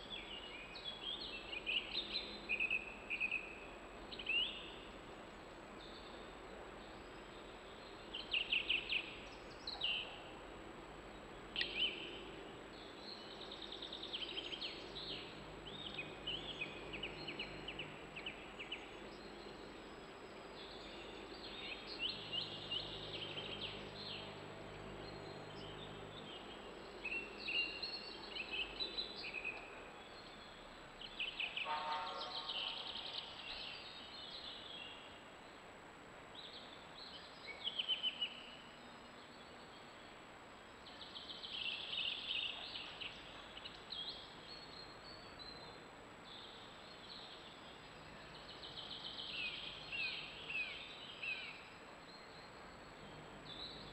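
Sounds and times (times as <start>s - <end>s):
songbirds singing: 0.0s - 53.9s.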